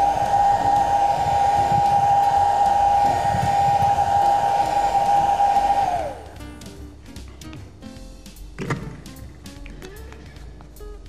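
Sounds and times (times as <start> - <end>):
hot-air blower whining: 0.0 - 6.4.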